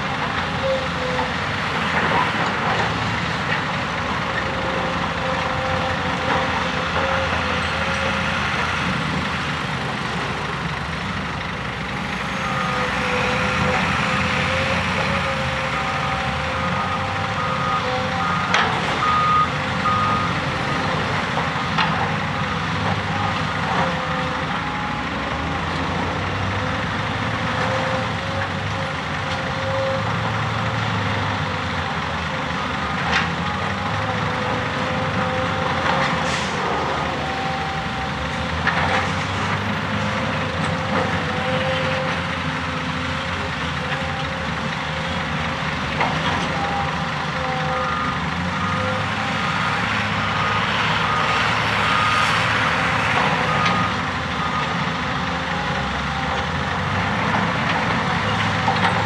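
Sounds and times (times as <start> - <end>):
excavator diesel engine and hydraulics: 0.0 - 59.0
reversing alarm beeps: 15.8 - 20.4, 47.6 - 54.9.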